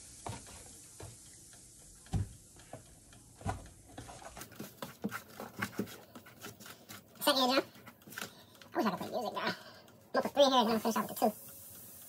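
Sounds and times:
food sizzling: 0:00.0 - 0:02.6, 0:10.2 - 0:12.0.

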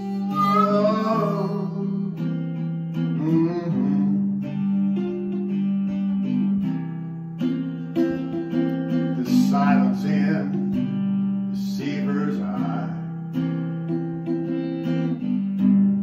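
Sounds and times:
harmonica long held notes: 0:00.0 - 0:05.4
acoustic guitar strumming: 0:00.0 - 0:16.0.

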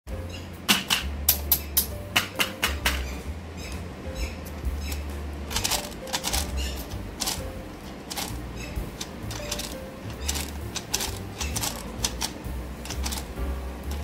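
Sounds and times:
hard plastic toys clicking: 0:04.4 - 0:14.0.

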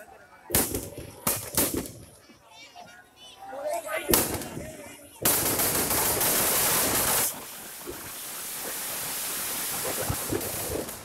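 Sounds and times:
fireworks hissing: 0:04.1 - 0:11.0.

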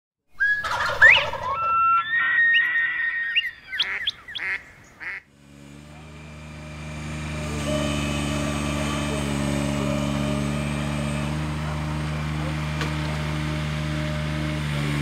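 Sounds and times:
birds calling: 0:00.3 - 0:06.1
motor humming: 0:02.4 - 0:15.0.

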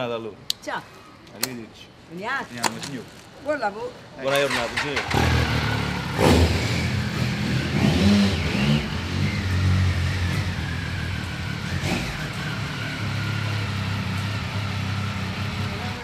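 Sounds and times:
motorcycle engine revving: 0:04.4 - 0:16.0.

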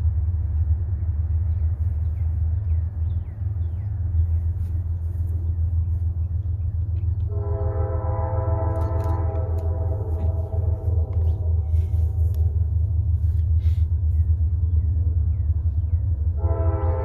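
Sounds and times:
steady low rumble: 0:00.0 - 0:17.0
locomotive air horn: 0:07.2 - 0:12.5, 0:16.3 - 0:17.0.

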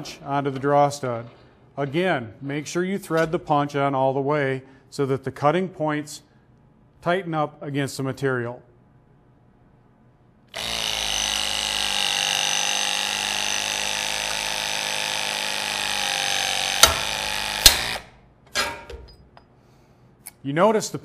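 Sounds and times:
hydraulic punch driver running: 0:10.5 - 0:18.2
sharp cracks of metal: 0:16.1 - 0:19.2.

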